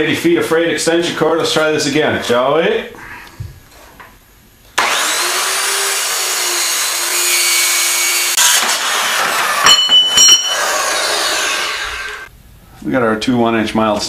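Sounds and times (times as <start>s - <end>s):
circular saw cutting metal: 4.8s - 12.3s
saw blade winding down: 4.8s - 12.3s
ringing metal clanks: 9.6s - 10.9s.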